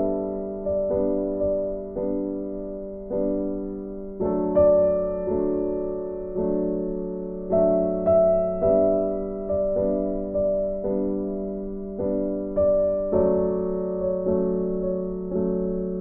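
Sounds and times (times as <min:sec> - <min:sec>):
soft solo piano chords: 0:00.0 - 0:16.0.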